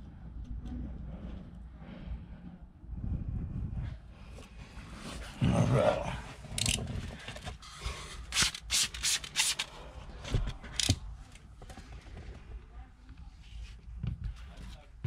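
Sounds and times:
spray bottle squirting: 8.4s - 9.6s.

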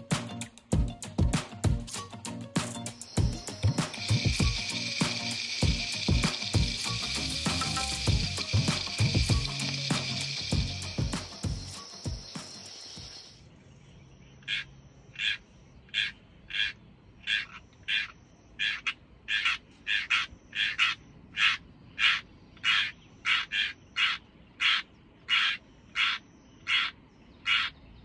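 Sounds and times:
crow cawing: 14.5s - 27.7s.

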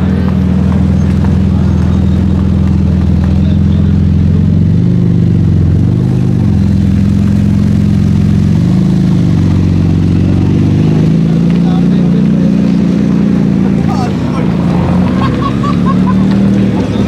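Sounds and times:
car engine running at low revs: 0.0s - 17.0s.

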